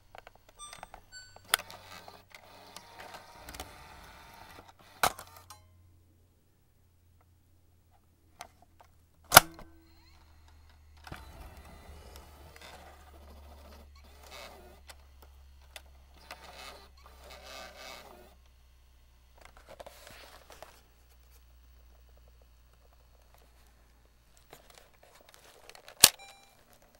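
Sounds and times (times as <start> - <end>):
cassette case click: 9.3 - 9.7
plastic rattling and scraping: 24.4 - 26.9.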